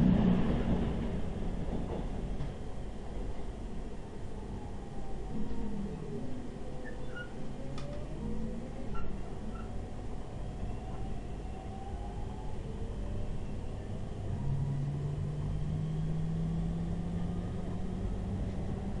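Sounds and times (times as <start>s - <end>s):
train wheels rumbling on track: 0.0s - 19.0s.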